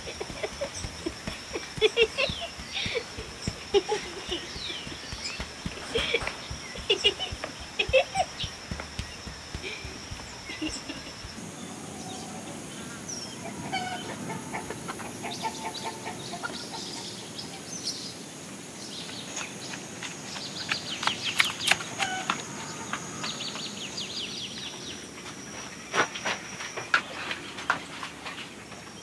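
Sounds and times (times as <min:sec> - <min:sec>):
chickens clucking: 0:00.0 - 0:11.4, 0:13.4 - 0:17.1
steady high whine: 0:00.0 - 0:13.5.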